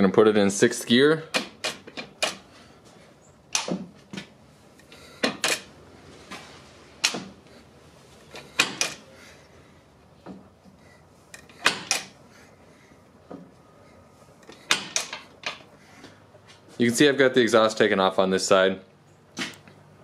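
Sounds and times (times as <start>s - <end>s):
motorcycle gears shifting clicks: 1.3s - 2.5s, 3.5s - 5.7s, 8.2s - 9.0s, 11.3s - 12.2s.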